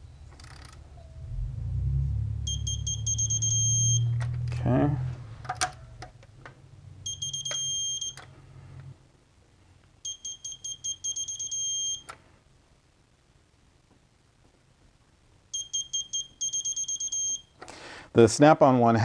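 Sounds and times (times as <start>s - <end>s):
torque wrench beeping: 2.5s - 4.2s, 7.1s - 8.2s, 10.1s - 12.1s, 15.6s - 17.5s.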